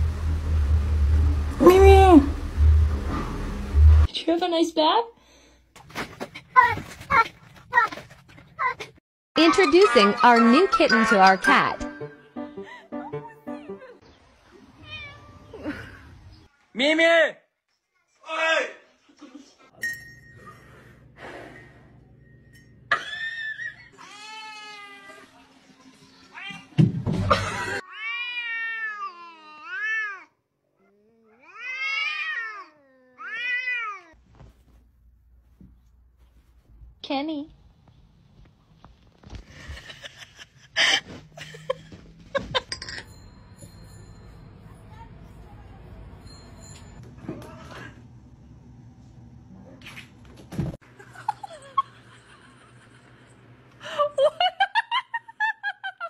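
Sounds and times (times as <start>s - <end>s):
cat yowling: 27.8s - 30.3s, 30.9s - 34.2s.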